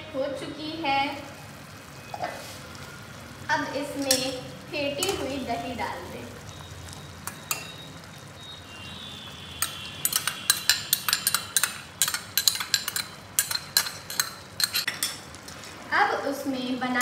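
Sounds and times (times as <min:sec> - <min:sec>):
meat sizzling in pot: 0:00.8 - 0:17.0
steel ladle scraping and tapping bowl: 0:09.6 - 0:15.2.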